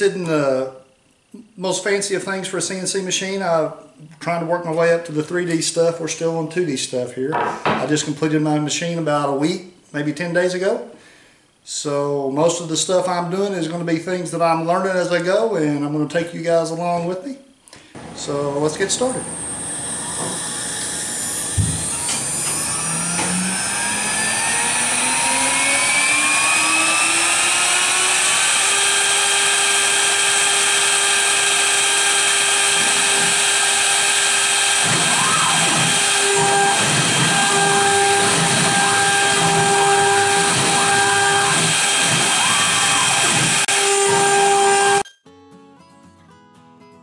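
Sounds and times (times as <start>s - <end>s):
router spindle whine: 18.0s - 45.0s
bit cutting into wood: 20.2s - 45.0s
spindle starting thump: 21.5s - 23.5s.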